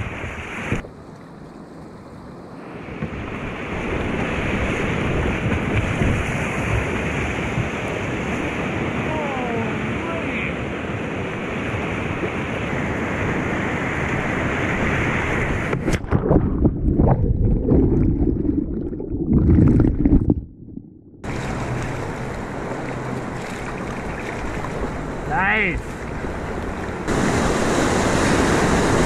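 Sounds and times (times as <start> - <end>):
muffled underwater churning: 15.0 - 29.0
whitewater rushing: 21.2 - 29.0.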